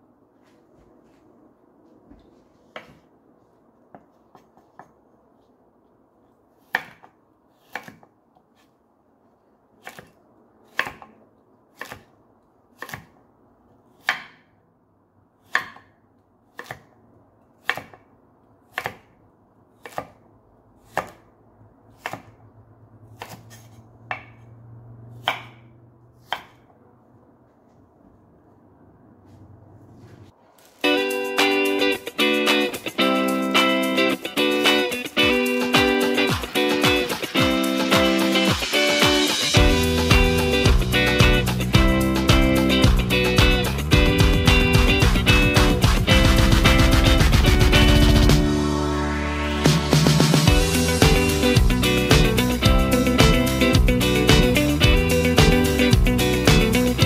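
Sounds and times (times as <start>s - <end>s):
knife chopping on wooden board: 2.7s - 3.0s, 6.6s - 8.7s, 9.8s - 11.2s, 11.8s - 12.1s, 12.8s - 13.2s, 14.0s - 14.5s, 15.4s - 17.0s, 17.6s - 18.1s, 18.7s - 19.2s, 19.8s - 20.2s, 20.8s - 21.3s, 21.9s - 22.4s, 23.1s - 24.4s, 25.2s - 25.6s, 26.2s - 26.8s.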